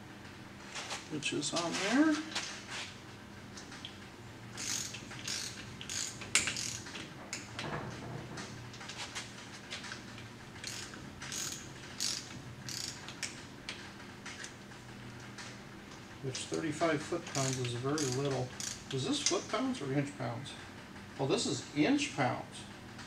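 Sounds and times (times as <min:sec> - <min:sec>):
ratchet wrench clicking: 0:04.6 - 0:07.5, 0:10.6 - 0:13.4, 0:17.3 - 0:18.9.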